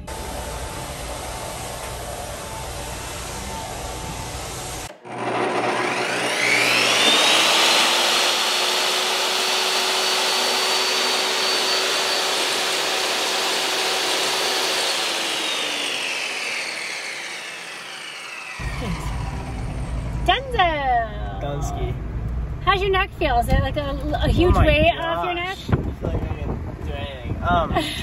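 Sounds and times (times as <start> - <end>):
hair dryer motor whine: 0.0 - 20.6.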